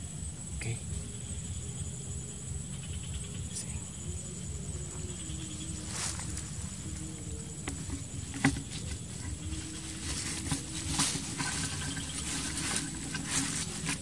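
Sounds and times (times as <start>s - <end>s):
camera handling rumble and rustles: 6.1s - 14.0s.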